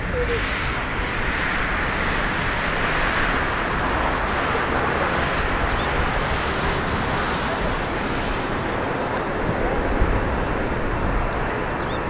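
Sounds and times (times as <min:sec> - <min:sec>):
jet engines at takeoff thrust: 0:00.0 - 0:12.0.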